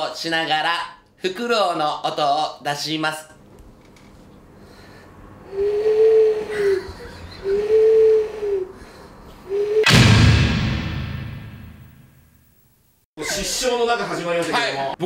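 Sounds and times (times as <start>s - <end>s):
man imitating owl hoots: 5.4s - 9.8s
crash sound effect: 9.8s - 12.3s.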